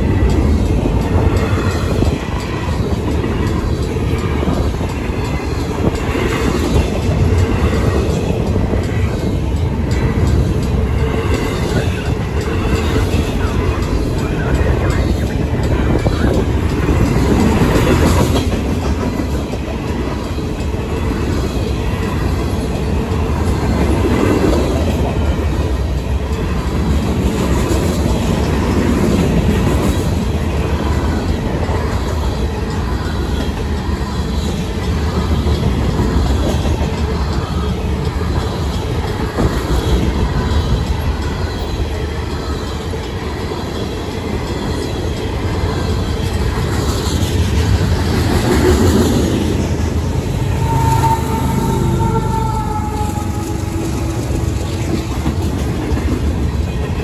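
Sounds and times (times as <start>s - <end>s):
crossing bells ringing: 0.0s - 29.6s, 49.5s - 57.0s
diesel locomotive: 0.0s - 57.0s
freight cars rumbling on rails: 0.0s - 57.0s
wheel squeal: 50.4s - 54.2s.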